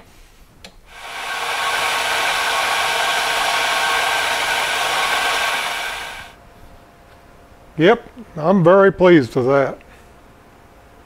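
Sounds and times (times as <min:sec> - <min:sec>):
milling machine whirring: 0:00.9 - 0:06.4.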